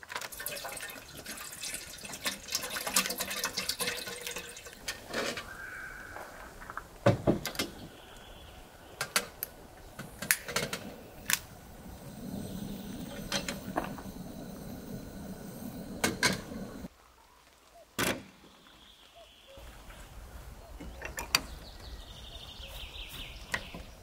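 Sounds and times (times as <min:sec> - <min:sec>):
low steady rush: 0:07.8 - 0:16.9.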